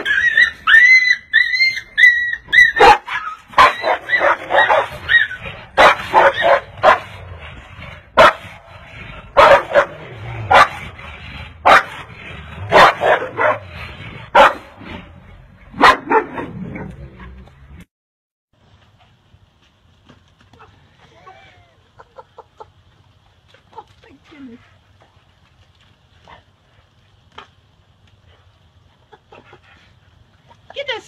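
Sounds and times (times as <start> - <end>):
dogs yelping and barking: 0.0 - 7.4, 8.2 - 11.0.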